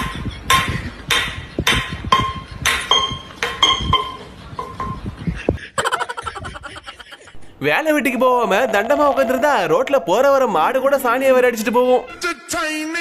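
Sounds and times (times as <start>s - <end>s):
man chuckling: 5.2s - 7.6s.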